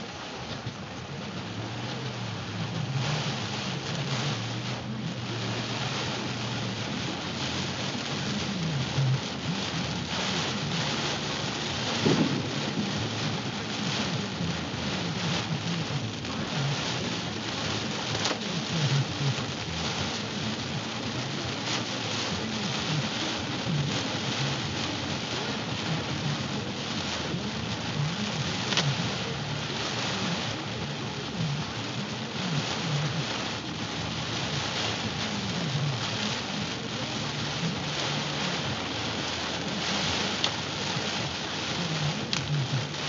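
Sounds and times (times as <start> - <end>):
heavy rain on car roof: 0.0 - 43.0.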